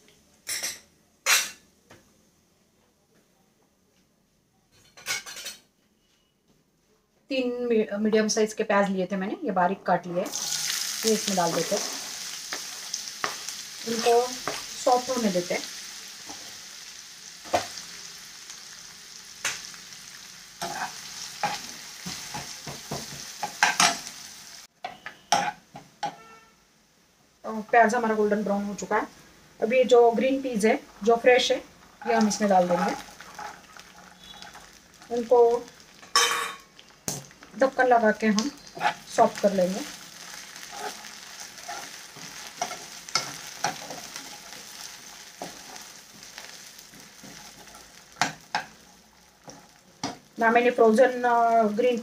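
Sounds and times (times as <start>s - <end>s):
onions sizzling in oil: 10.2s - 26.2s, 27.4s - 52.0s
spoon scraping frying pan: 11.5s - 15.1s, 20.6s - 24.1s, 32.0s - 34.8s, 38.4s - 39.4s, 40.2s - 48.8s.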